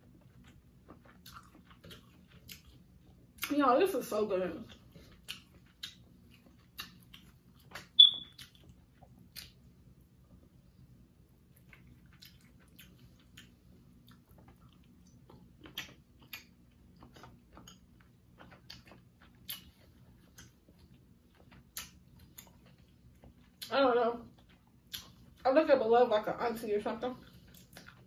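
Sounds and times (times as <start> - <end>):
person chewing with mouth smacks: 0.0 - 3.5, 4.7 - 9.7, 11.4 - 23.7, 24.3 - 25.4, 27.2 - 28.0
faint low hum: 0.0 - 28.0.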